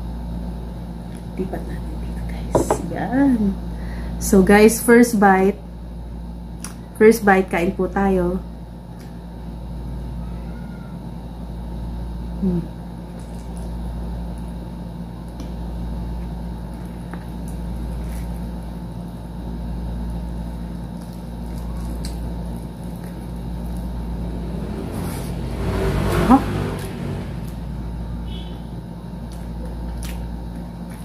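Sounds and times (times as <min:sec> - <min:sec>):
person humming: 0:12.4 - 0:12.7
chewing fried chicken: 0:12.9 - 0:25.4, 0:29.1 - 0:31.0.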